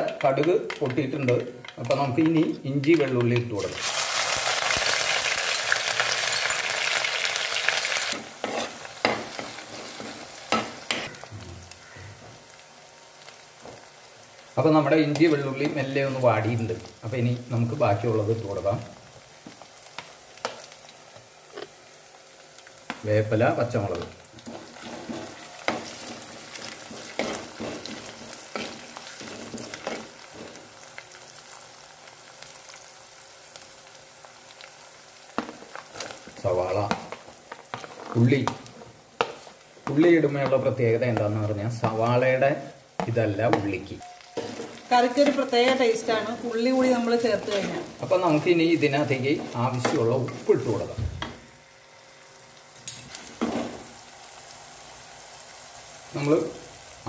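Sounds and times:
garlic sizzling in hot oil: 0.0s - 57.0s
spatula scraping and knocking pot: 8.4s - 11.1s, 24.4s - 30.6s.

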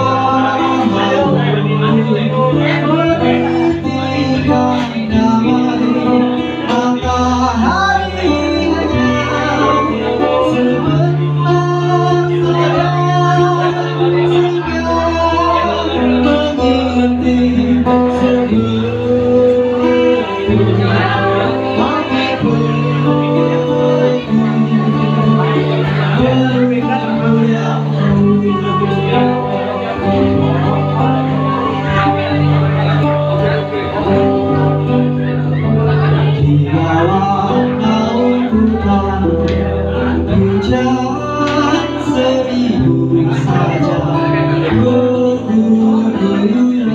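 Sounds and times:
person singing long bending notes: 0.0s - 32.9s
acoustic guitar chords: 0.0s - 46.9s
violin: 0.0s - 46.9s.

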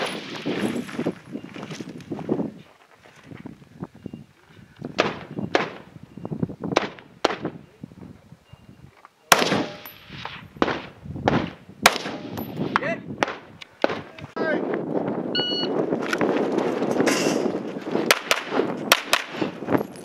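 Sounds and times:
rifle shots: 9.3s - 14.1s, 18.1s - 19.6s.

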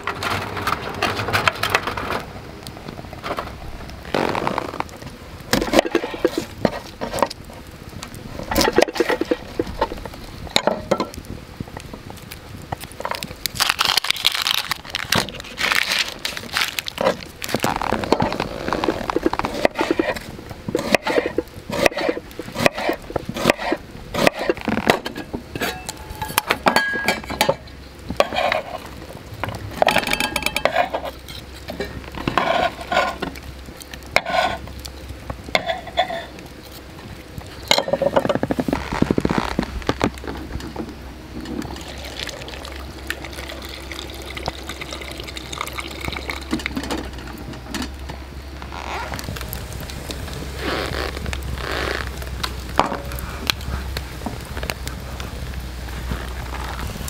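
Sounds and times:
clinks and scrapes in metal mug: 28.2s - 28.9s, 29.8s - 33.3s, 35.5s - 36.3s.

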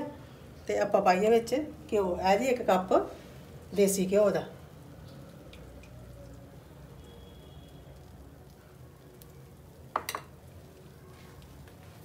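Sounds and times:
steel cup clattering: 10.0s - 10.3s.

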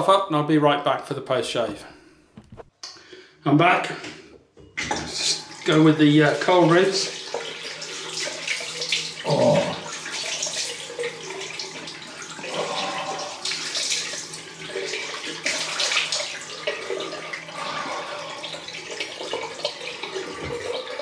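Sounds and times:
tap water running into sink: 4.8s - 21.0s.

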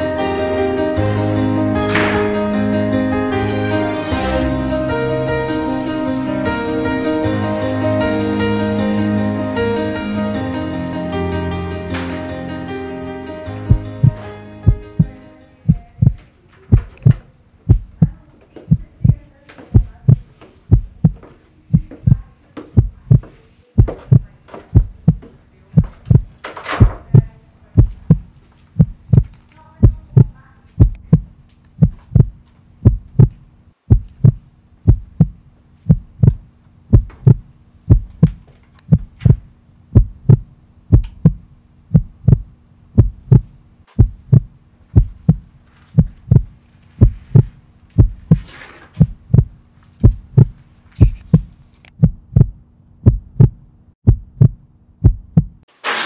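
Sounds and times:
deep heartbeat thumps: 13.7s - 55.6s.

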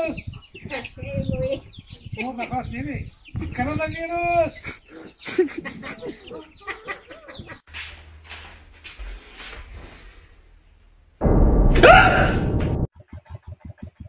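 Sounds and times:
chickens clucking: 0.0s - 7.7s
sudden loud noise: 11.2s - 12.9s.

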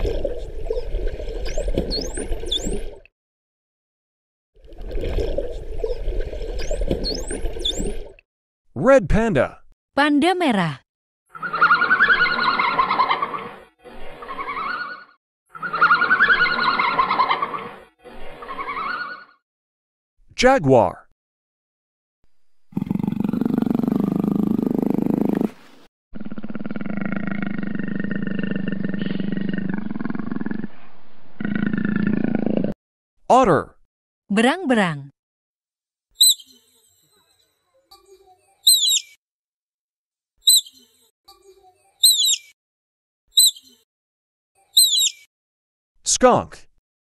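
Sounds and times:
jaguar growling: 22.7s - 25.6s, 26.2s - 30.8s
otter chirping: 36.2s - 36.7s, 38.6s - 39.2s, 40.4s - 40.9s, 42.0s - 42.5s, 43.4s - 43.8s, 44.8s - 45.3s.

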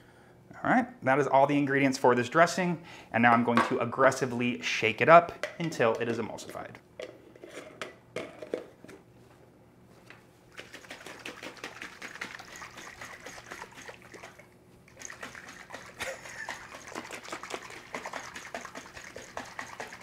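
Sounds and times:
liquid sloshing in shaken jar: 10.5s - 20.0s.

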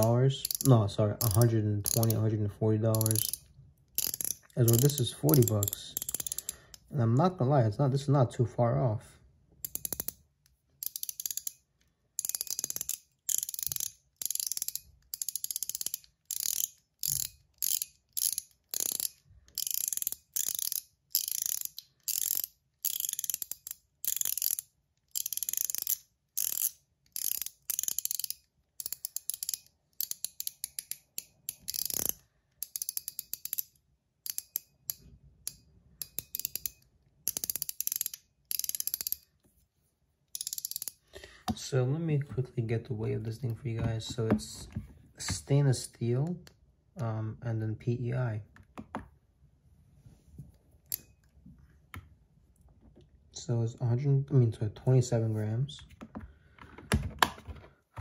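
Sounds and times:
fidget ring clicking: 0.0s - 2.2s, 2.9s - 6.9s, 9.6s - 10.2s, 10.8s - 11.6s, 12.2s - 39.3s, 40.4s - 41.0s.

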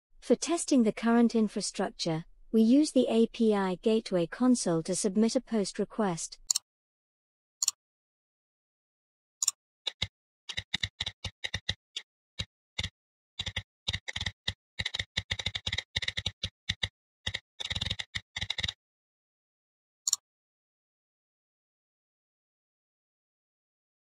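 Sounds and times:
typing on keyboard: 9.4s - 18.8s.

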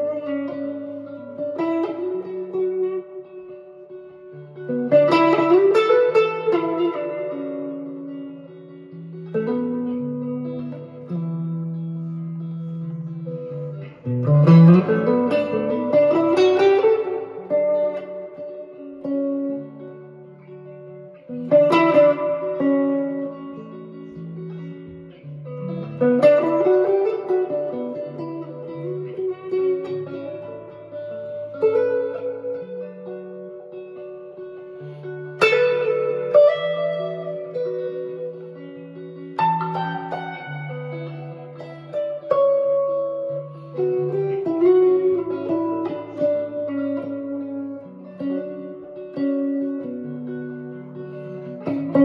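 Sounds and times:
electric guitar chord: 0.0s - 52.0s
electric guitar melody: 0.0s - 52.0s.

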